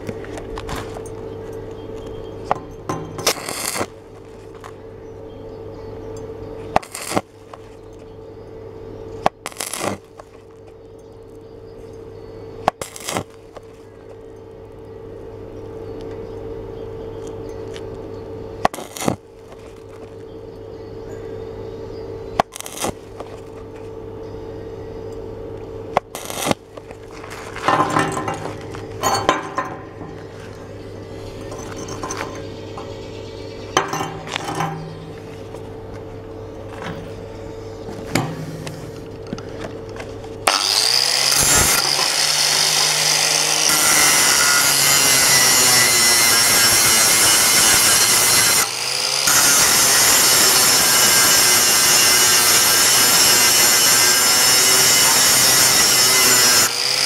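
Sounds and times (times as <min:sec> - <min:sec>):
steady hum: 0:00.0 - 0:40.5
welding arc crackling: 0:03.2 - 0:04.8, 0:06.8 - 0:07.8, 0:09.2 - 0:10.4, 0:12.7 - 0:13.9, 0:18.7 - 0:19.9, 0:22.4 - 0:23.6, 0:26.0 - 0:30.3, 0:40.4 - 0:57.0.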